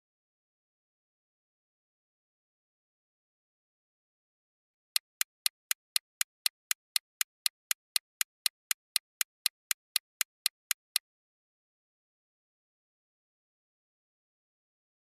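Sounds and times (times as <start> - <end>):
clock ticking: 5.0 - 11.0.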